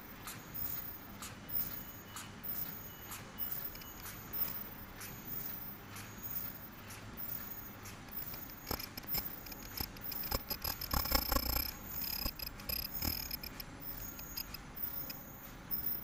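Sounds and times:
machine clicks and knocks: 0:00.2 - 0:16.0
faint high whine: 0:07.2 - 0:16.0.

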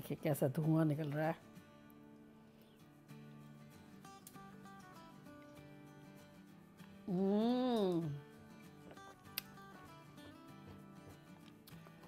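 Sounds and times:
soft background music: 0:00.0 - 0:12.0.

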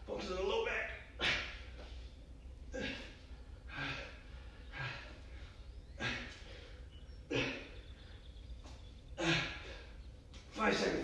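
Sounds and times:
man breathing hard: 0:01.2 - 0:08.4, 0:09.2 - 0:10.0.

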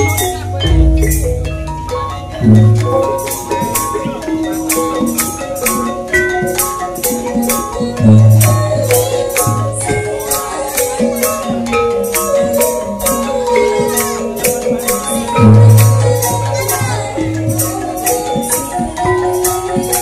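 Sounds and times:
large drum strokes: 0:00.0 - 0:05.8
metallophone and kettle gongs: 0:00.0 - 0:20.0.

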